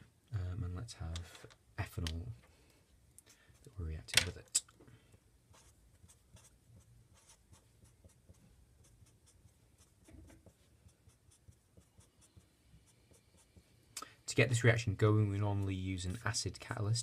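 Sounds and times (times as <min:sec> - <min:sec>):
marker scratching on paper: 0:05.5 - 0:13.7.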